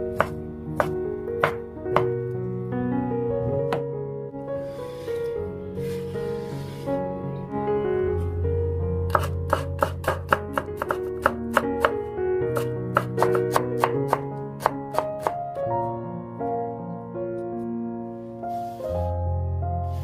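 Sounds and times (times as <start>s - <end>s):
background music: 0.0s - 20.0s
knife chopping on cutting board: 0.1s - 2.1s, 9.1s - 11.9s, 12.6s - 15.4s.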